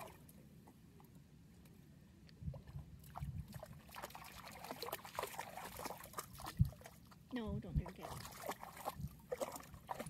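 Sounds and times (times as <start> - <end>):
water splashing and lapping: 0.0 - 1.1, 2.3 - 10.0.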